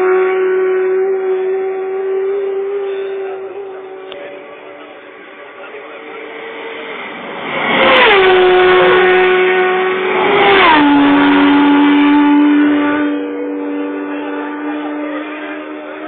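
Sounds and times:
motorcycle engine passing at full throttle: 0:00.0 - 0:16.0.

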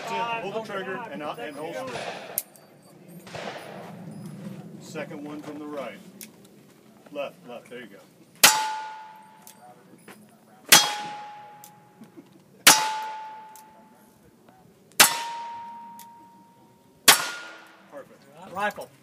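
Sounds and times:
steel target clanging: 0:01.7 - 0:04.3, 0:08.4 - 0:09.8, 0:10.7 - 0:12.0, 0:12.6 - 0:14.1, 0:15.0 - 0:17.9.

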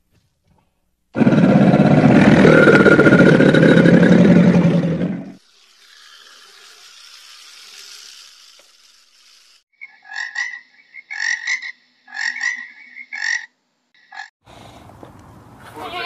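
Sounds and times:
frog croaking: 0:09.8 - 0:14.3.

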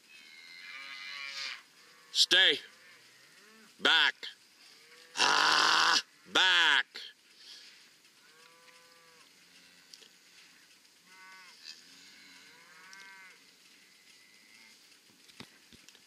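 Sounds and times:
cattle mooing faintly: 0:11.0 - 0:14.8.

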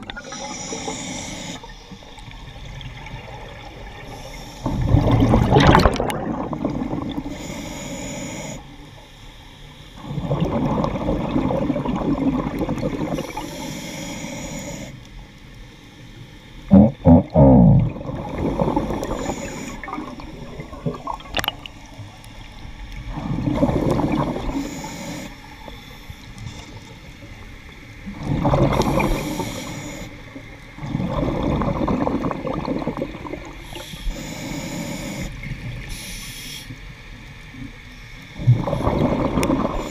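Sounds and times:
regulator inhalation hiss: 0:00.2 - 0:02.0, 0:04.0 - 0:04.8, 0:07.2 - 0:10.0, 0:13.1 - 0:15.2, 0:18.7 - 0:20.2, 0:24.4 - 0:26.8, 0:28.9 - 0:30.4, 0:33.6 - 0:36.9
exhaled bubbles rushing: 0:02.3 - 0:07.3, 0:10.0 - 0:13.4, 0:16.7 - 0:22.0, 0:23.0 - 0:24.6, 0:28.0 - 0:29.4, 0:30.8 - 0:33.6, 0:38.4 - 0:39.9.

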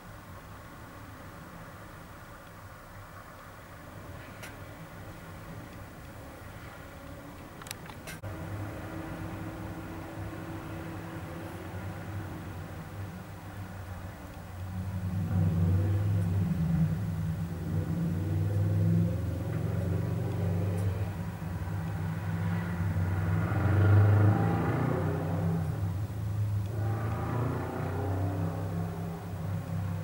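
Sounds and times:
low engine rumble: 0:00.0 - 0:30.0
vehicles passing: 0:00.0 - 0:30.0.

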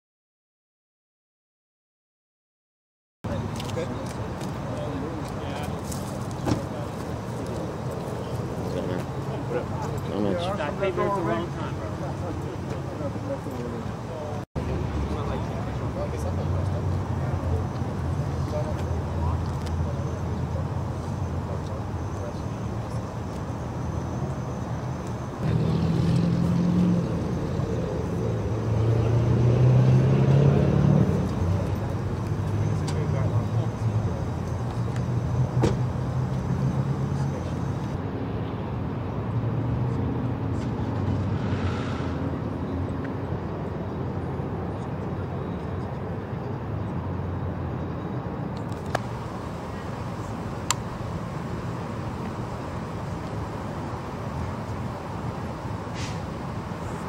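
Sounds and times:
distant road traffic rumble: 0:03.2 - 0:57.0
vehicle engine humming: 0:03.3 - 0:38.0, 0:48.6 - 0:57.0.

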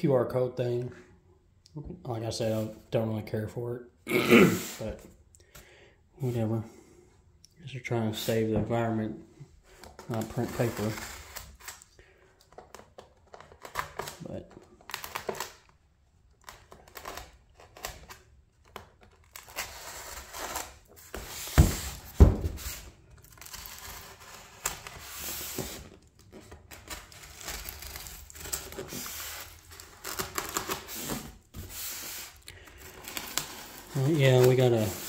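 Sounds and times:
scraping and tearing on foam: 0:10.1 - 0:11.9, 0:16.4 - 0:35.0.

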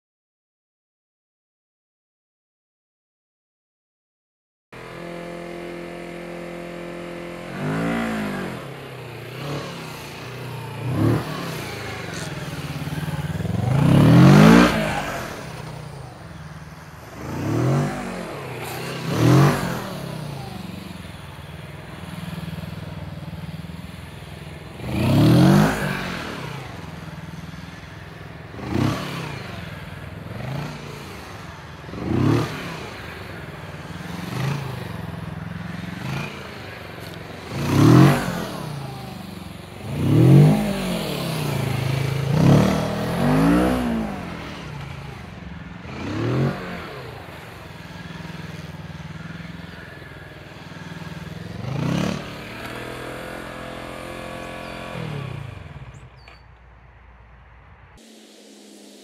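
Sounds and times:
motorcycle engine revving: 0:04.8 - 0:56.6.

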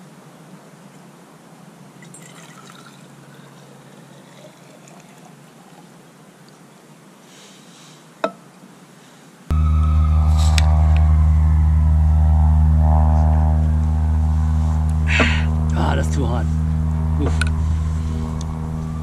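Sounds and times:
water trickling into flask: 0:02.0 - 0:06.0
loud steady hum: 0:09.5 - 0:19.0.

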